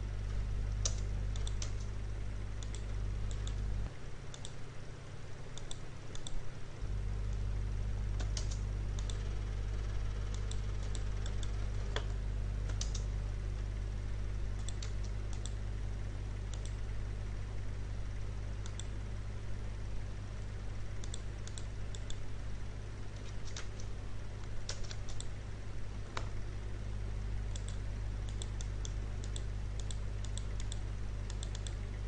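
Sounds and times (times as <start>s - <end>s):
low electrical hum: 0.0s - 32.0s
keyboard and mouse clicks: 0.8s - 1.9s, 2.6s - 3.6s, 4.3s - 4.6s, 5.6s - 6.4s, 8.2s - 9.2s, 10.3s - 13.7s, 14.6s - 15.6s, 16.5s - 16.8s, 18.6s - 18.9s, 21.0s - 22.2s, 23.2s - 25.3s, 27.5s - 31.8s.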